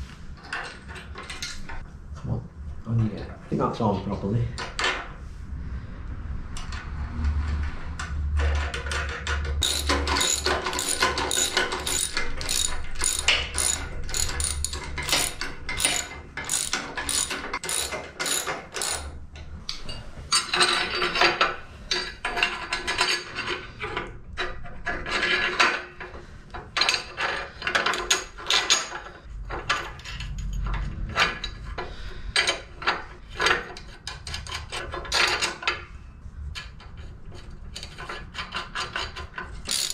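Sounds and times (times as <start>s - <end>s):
ratchet spanner clicking: 9.6s - 19.1s, 39.6s - 39.9s.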